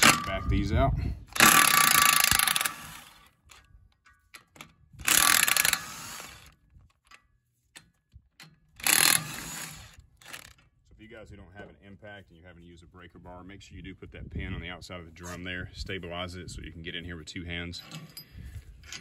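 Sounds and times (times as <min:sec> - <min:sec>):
impact wrench hammering: 0:00.0 - 0:00.5, 0:01.4 - 0:03.1
small metallic clicks: 0:01.3 - 0:10.8.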